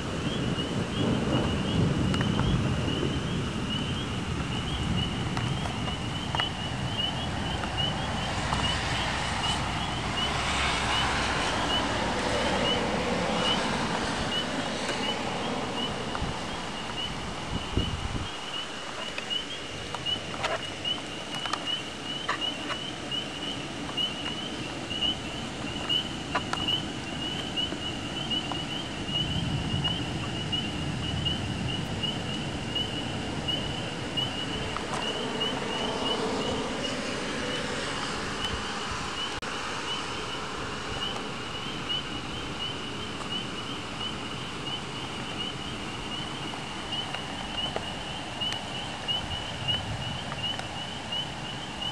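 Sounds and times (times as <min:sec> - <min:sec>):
distant thunder rumble: 0:00.0 - 0:18.6, 0:22.3 - 0:38.7
rushing noise: 0:00.0 - 0:43.2.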